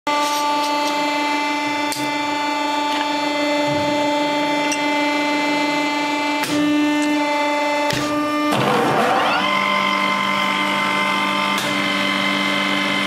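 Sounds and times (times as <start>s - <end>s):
welding machine humming: 0.2s - 8.1s.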